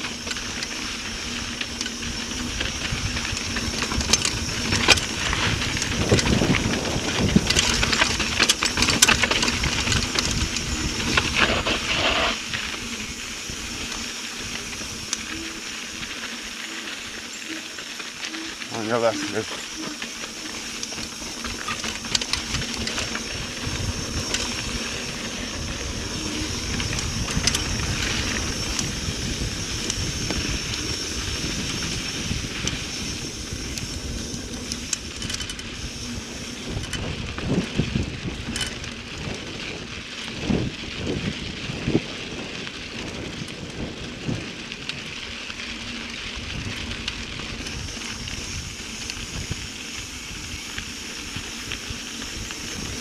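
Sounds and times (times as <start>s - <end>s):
bike rattling over rough ground: 0.0s - 53.0s
bike tyres rolling on dirt: 0.0s - 53.0s
wind rumbling on microphone: 0.0s - 53.0s.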